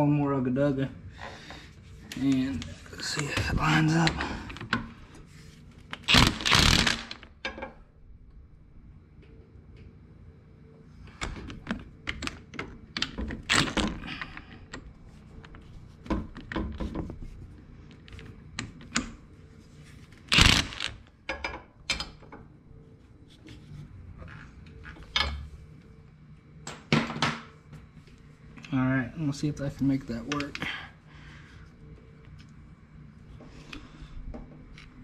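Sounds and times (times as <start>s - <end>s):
impact wrench burst: 6.0s - 7.3s, 20.3s - 21.0s.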